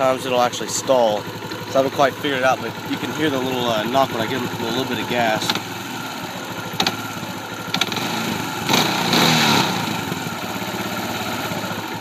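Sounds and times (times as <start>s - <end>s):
engine idling: 0.0s - 12.0s
sharp engine knock: 6.7s - 7.0s.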